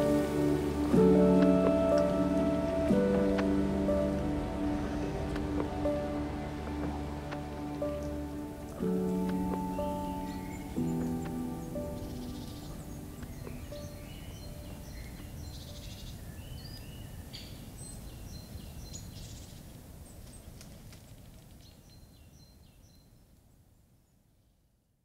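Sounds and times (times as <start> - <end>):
low background rumble: 0.0 - 16.0
small birds chirping: 0.0 - 20.6.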